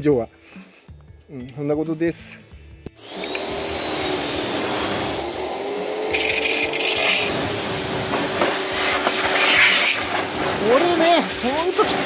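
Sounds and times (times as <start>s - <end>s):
pressure washer jet hissing on metal: 6.1s - 12.0s.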